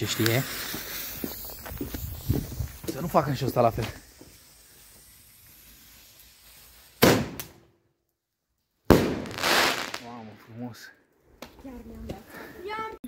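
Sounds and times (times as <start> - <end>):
firecracker bangs: 7.0 - 7.6, 8.9 - 10.2.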